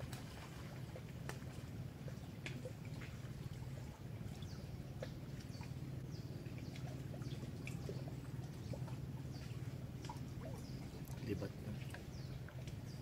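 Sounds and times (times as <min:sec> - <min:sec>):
small waves lapping: 0:00.0 - 0:13.0
steady low rumble: 0:00.0 - 0:13.0.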